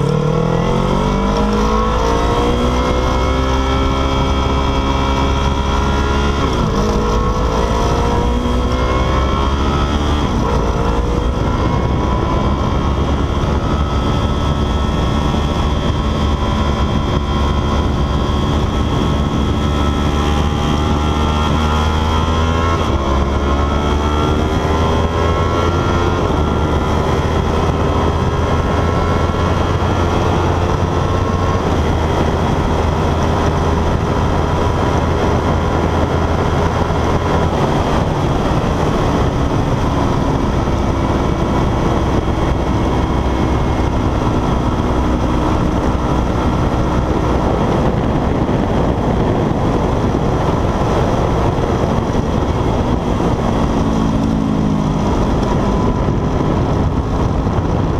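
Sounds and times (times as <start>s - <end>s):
motorcycle engine running hard: 0.0s - 57.9s
wind rush: 0.0s - 57.9s.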